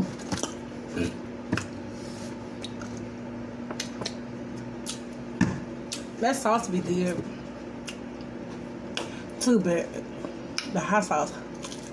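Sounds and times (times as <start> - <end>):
electric fan humming: 0.0 - 11.9
chewing and mouth smacks: 2.5 - 3.1, 3.7 - 5.2, 7.8 - 9.1.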